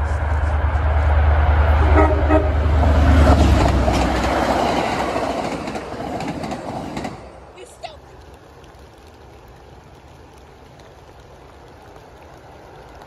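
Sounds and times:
train horn blast: 0.0s - 3.6s
train passing: 0.0s - 9.9s
wheel and rail clatter: 2.7s - 13.0s.

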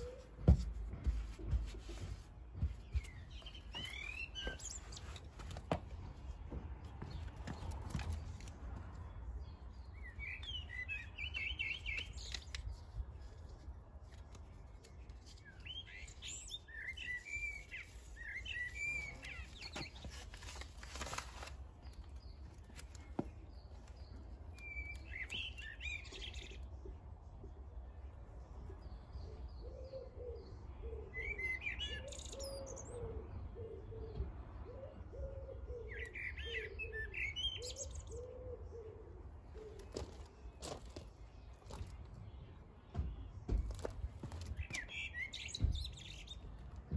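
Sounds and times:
songbirds singing: 0.0s - 46.9s
low repeated cooing: 29.3s - 31.3s, 32.4s - 36.0s, 38.0s - 39.9s.

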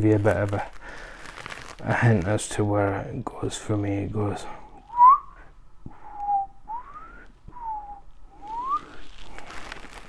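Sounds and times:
man whistling: 4.9s - 9.0s.

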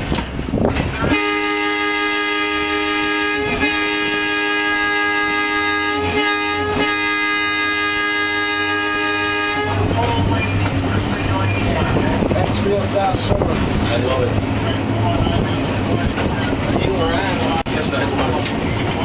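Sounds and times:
train horn blasts: 1.0s - 10.0s.

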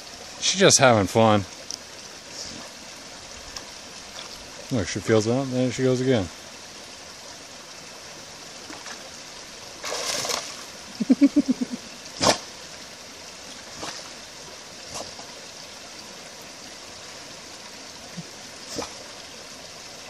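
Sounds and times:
water trickling over rocks: 0.0s - 20.0s
water splash: 9.8s - 11.5s, 12.2s - 12.6s, 13.5s - 14.2s.

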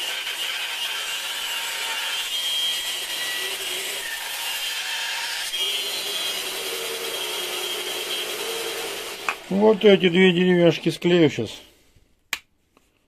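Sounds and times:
bandsaw cutting wood: 0.0s - 11.5s.

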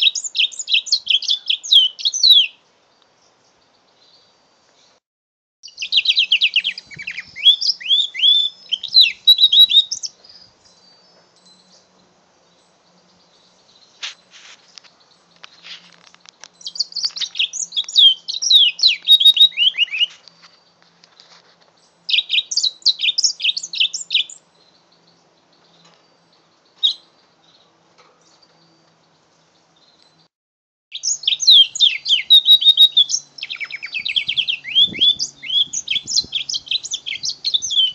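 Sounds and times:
canary singing: 0.0s - 2.6s, 5.6s - 14.0s, 14.7s - 20.4s, 21.8s - 30.3s, 30.9s - 37.9s.

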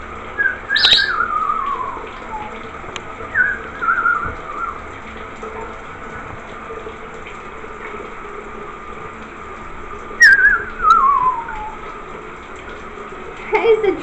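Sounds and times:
shower water running: 0.0s - 14.0s
wavering whistle gliding down: 3.4s - 4.8s, 10.2s - 11.8s.

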